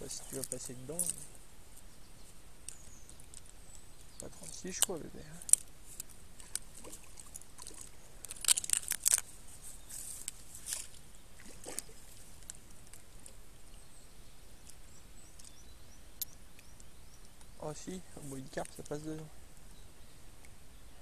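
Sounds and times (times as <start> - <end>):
fish splashing in water: 11.4 - 12.2.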